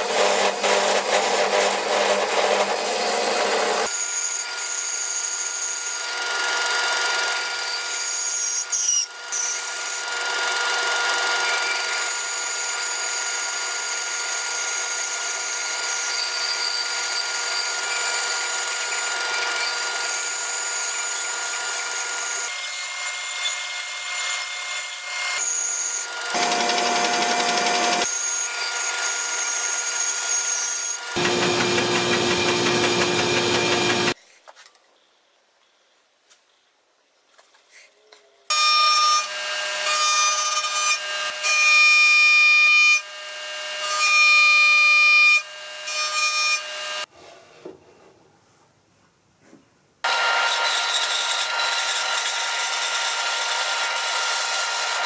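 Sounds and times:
bandsaw cutting wood: 0.0 - 4.3, 15.8 - 34.2, 50.1 - 55.0.

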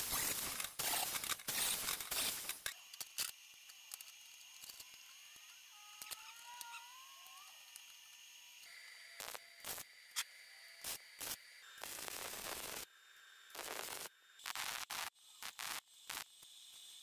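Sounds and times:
metal clamps scraping and rustling: 0.1 - 4.9.

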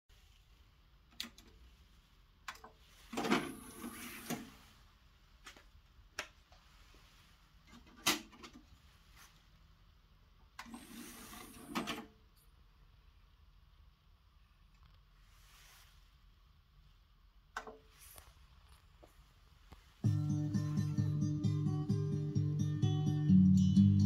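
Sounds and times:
disc tray sliding under motor: 3.3 - 4.5, 10.6 - 12.0.

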